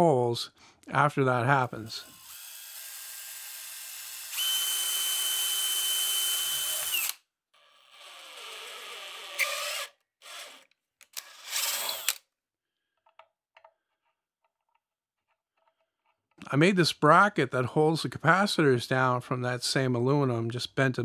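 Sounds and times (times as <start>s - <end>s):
cordless drill drilling into metal: 1.9s - 12.2s.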